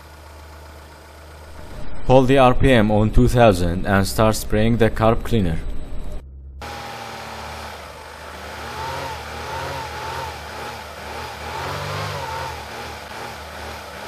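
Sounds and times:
car engine fast idle: 0:00.0 - 0:01.6.

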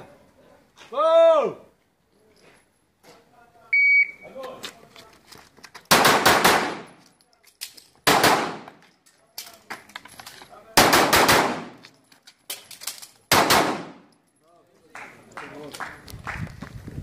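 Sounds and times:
pistol shots with echo: 0:05.9 - 0:06.9, 0:08.0 - 0:08.7, 0:10.8 - 0:11.8, 0:13.3 - 0:14.1.

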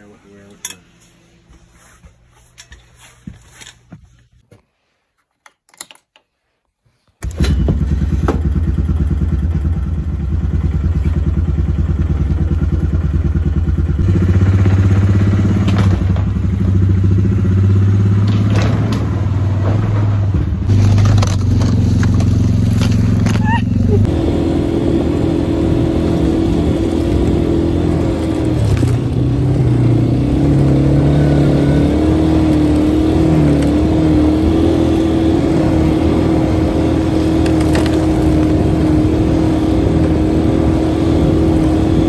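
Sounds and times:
atv engine running: 0:07.2 - 0:42.0.

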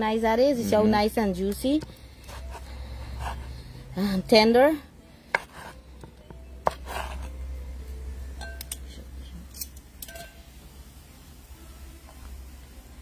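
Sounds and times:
knife cutting on wooden board: 0:05.3 - 0:05.8, 0:06.6 - 0:07.3.

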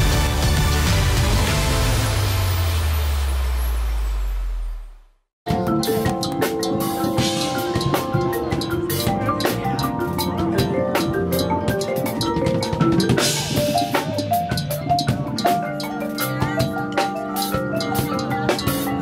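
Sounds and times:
drum kit: 0:00.0 - 0:02.9, 0:05.5 - 0:19.0
marimbas playing melodic lines: 0:05.5 - 0:19.0.

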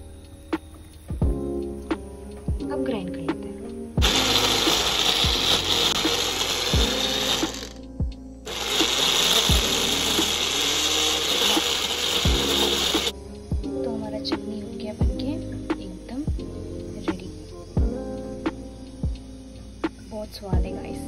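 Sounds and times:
electric mixer grinder running: 0:04.0 - 0:07.8, 0:08.5 - 0:13.1.

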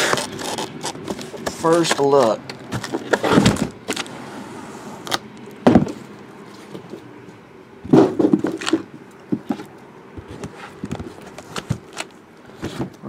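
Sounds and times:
boxes knocking on a table: 0:07.9 - 0:10.4.

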